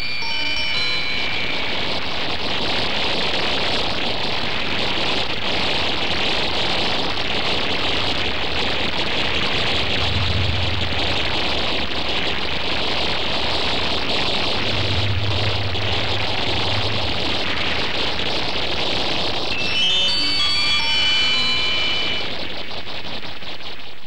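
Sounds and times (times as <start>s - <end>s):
deep rumble: 7.9s - 19.5s
rushing roar with hiss: 9.5s - 18.7s.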